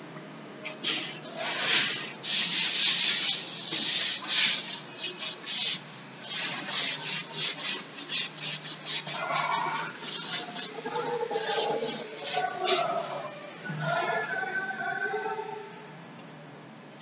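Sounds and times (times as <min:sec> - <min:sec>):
duster wiping a blackboard: 0:00.9 - 0:13.6.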